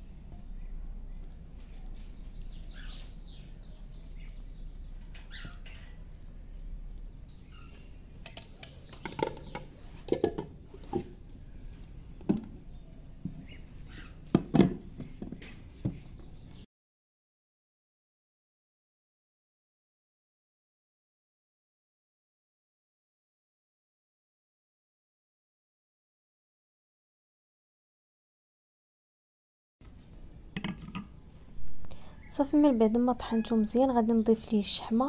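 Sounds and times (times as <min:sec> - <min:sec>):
faint bird chirps: 0:00.1 - 0:09.9, 0:12.7 - 0:14.2.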